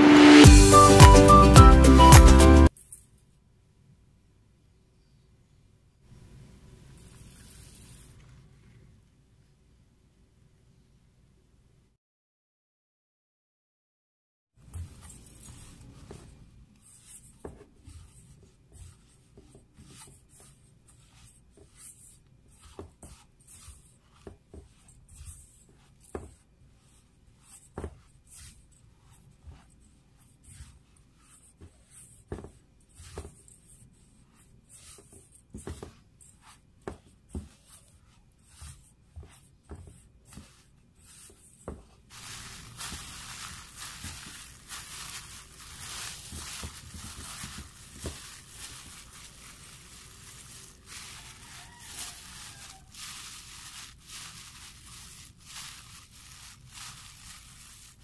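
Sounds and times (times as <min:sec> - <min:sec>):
plastic glove rustling: 0:14.6 - 0:26.1, 0:40.1 - 0:58.0.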